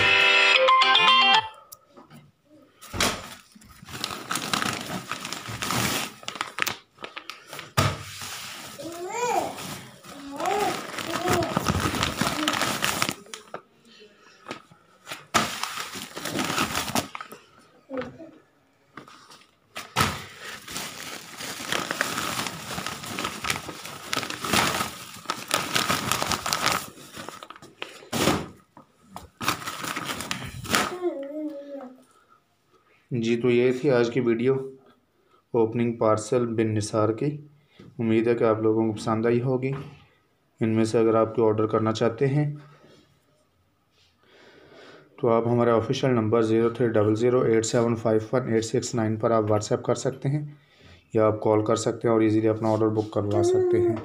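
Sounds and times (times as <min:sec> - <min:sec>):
plastic bag rustling: 0:03.2 - 0:13.6, 0:15.0 - 0:17.5, 0:19.1 - 0:28.6, 0:29.2 - 0:31.0.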